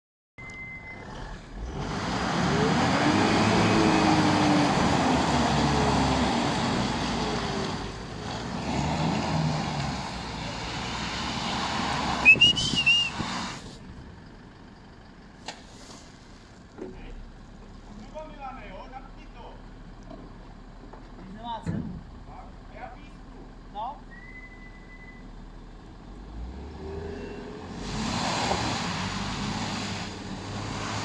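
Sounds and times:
engines revving: 0.9s - 13.9s, 24.1s - 31.0s
tyres spinning on muddy gravel: 27.8s - 31.0s.

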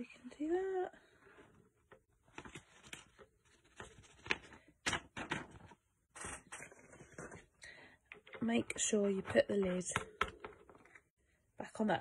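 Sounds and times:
craft supplies clicking and tapping: 8.1s - 11.0s.

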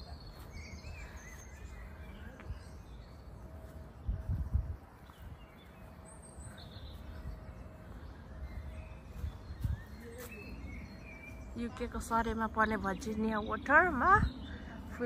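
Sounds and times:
faint bird chirps: 0.0s - 11.8s.

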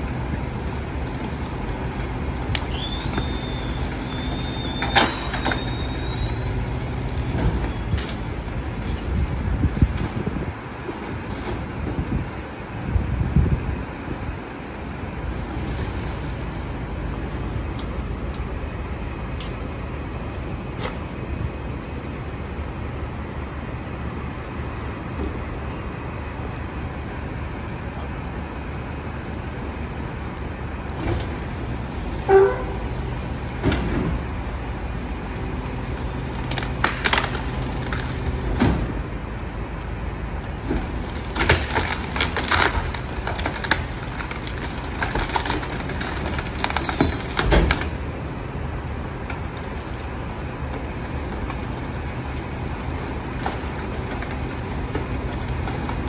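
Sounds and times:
garbage truck running: 0.0s - 56.0s
hydraulic squeal: 2.7s - 8.2s, 15.6s - 16.6s, 32.2s - 32.9s, 46.2s - 47.8s.

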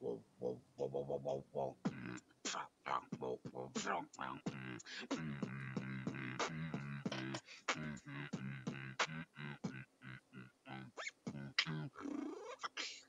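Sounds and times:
beatboxing percussion clicks: 1.8s - 9.9s, 11.0s - 12.8s.

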